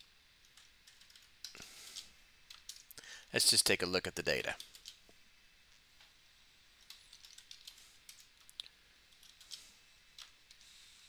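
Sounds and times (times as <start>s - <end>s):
faint computer keyboard typing: 0.4s - 3.0s, 4.5s - 5.0s, 6.8s - 10.7s.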